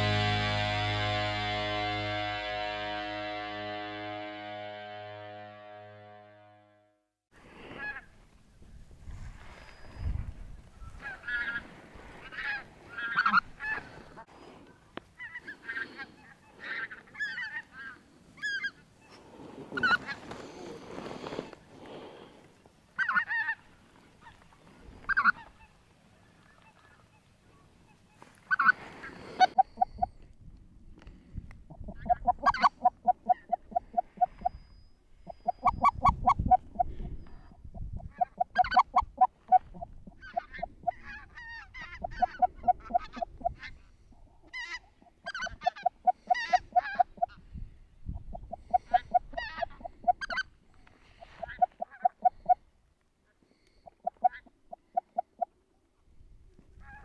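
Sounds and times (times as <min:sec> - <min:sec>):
higher yelping flock calls: 0:10.9 - 0:14.1, 0:15.2 - 0:19.2, 0:23.0 - 0:24.4, 0:25.1 - 0:25.8, 0:27.9 - 0:30.1, 0:31.7 - 0:34.7, 0:35.3 - 0:43.8, 0:44.5 - 0:47.4, 0:48.4 - 0:50.5, 0:51.2 - 0:52.6
geese honking: 0:11.0 - 0:14.2, 0:27.9 - 0:30.1, 0:38.2 - 0:43.8.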